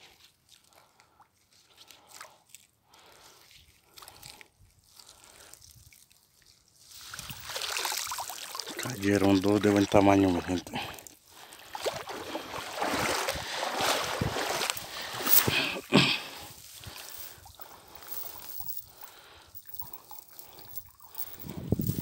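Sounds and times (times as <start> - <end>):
net rustling on grass: 11.6 - 22.0.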